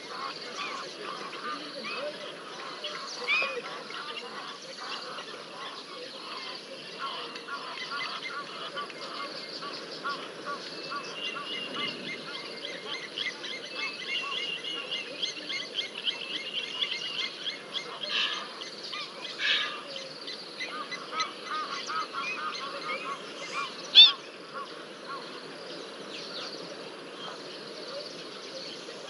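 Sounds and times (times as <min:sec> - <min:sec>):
steady low hiss: 0:00.0 - 0:29.0
waterbirds calling: 0:00.0 - 0:29.0.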